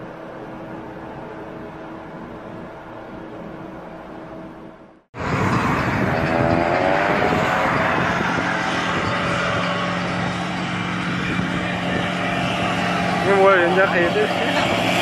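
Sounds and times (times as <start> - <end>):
car and road noise: 0.0 - 15.0
steady low drone: 0.0 - 15.0
engine note gliding in pitch: 5.2 - 15.0.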